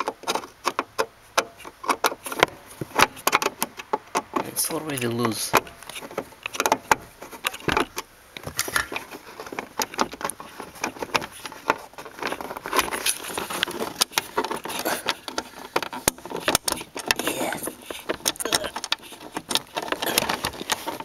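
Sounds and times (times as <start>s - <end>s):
clicks and rattles on plastic trim: 0.0s - 21.0s
screwdriver turning screw: 8.7s - 21.0s.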